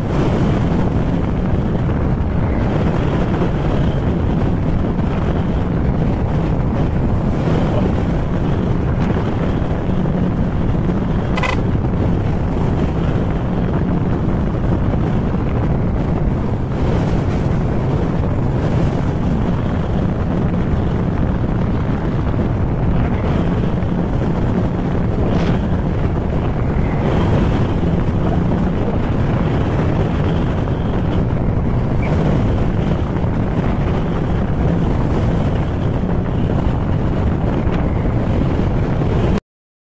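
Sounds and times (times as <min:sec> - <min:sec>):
wind rushing over microphone: 0:00.0 - 0:39.4
scooter engine running: 0:11.2 - 0:11.7.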